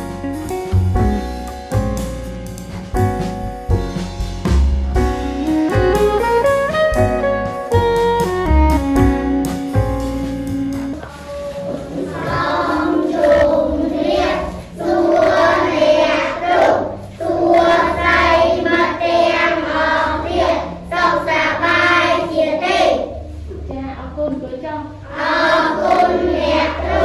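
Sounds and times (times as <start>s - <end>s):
background instrumental music: 0.0s - 22.2s
children chanting in unison: 12.0s - 23.1s, 25.1s - 27.0s.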